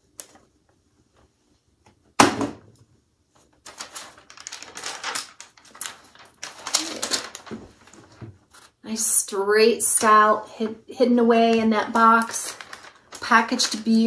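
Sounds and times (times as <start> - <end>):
tissue paper rustling: 3.4 - 8.8, 11.7 - 14.0.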